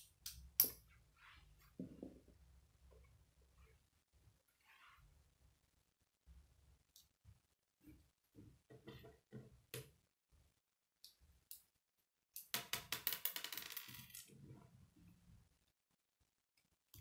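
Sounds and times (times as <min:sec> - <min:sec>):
pieces clattering onto wooden table: 0:12.9 - 0:14.3.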